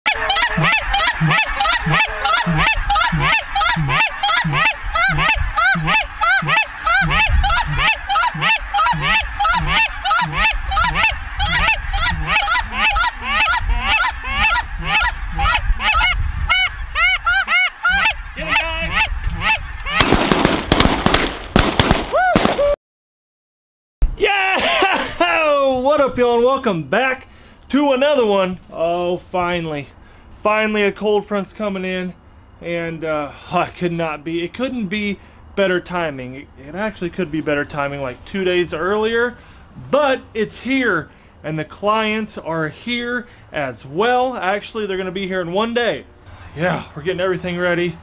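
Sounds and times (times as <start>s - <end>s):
geese honking: 0.1s - 21.1s.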